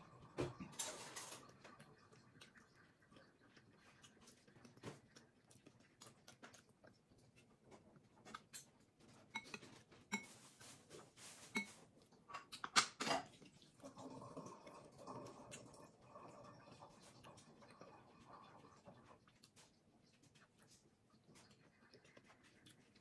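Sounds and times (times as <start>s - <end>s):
chewing and mouth clicks: 0.0s - 23.0s
spoon clinking against dishes: 9.3s - 10.4s, 11.5s - 11.8s.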